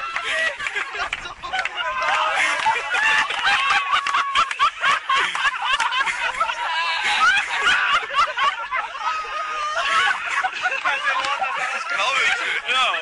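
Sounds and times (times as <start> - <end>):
young men laughing: 0.0 - 13.0.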